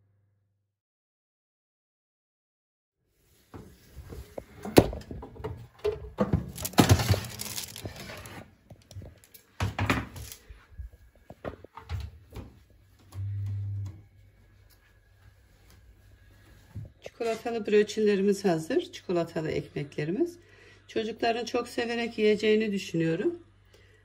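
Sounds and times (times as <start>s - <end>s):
metal baking tray clattering: 5.5s - 8.4s
short low hum: 13.1s - 15.0s.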